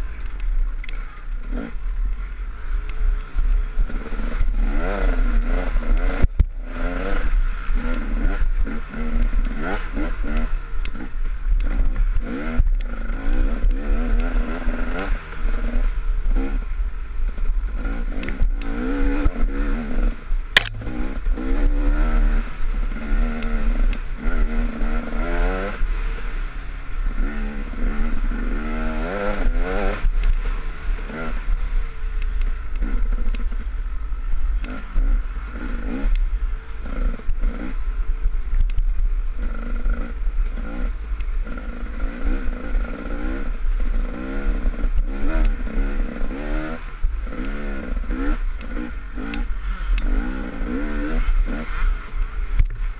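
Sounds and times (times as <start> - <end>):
dirt bike engine revving: 17.3 - 32.0, 39.4 - 52.9.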